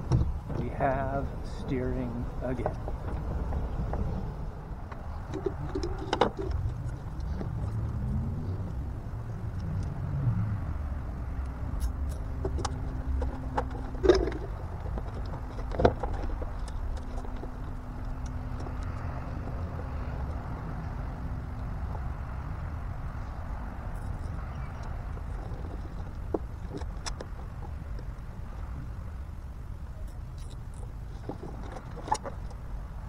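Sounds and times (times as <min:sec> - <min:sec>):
low outdoor rumble: 0:00.0 - 0:33.0
cables knocking and clicking: 0:11.8 - 0:19.1.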